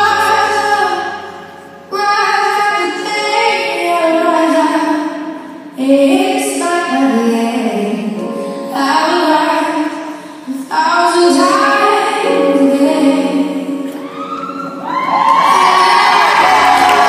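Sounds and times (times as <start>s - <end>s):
song with female vocal: 0.0s - 17.0s.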